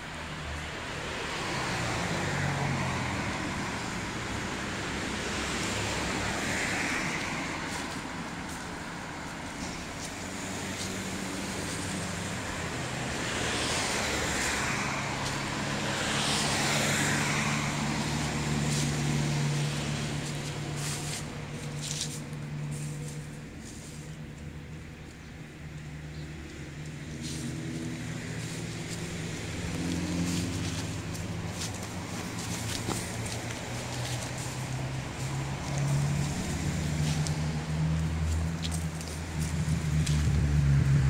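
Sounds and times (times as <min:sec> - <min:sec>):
cars passing: 0:00.0 - 0:41.0
low engine hum: 0:00.0 - 0:41.0.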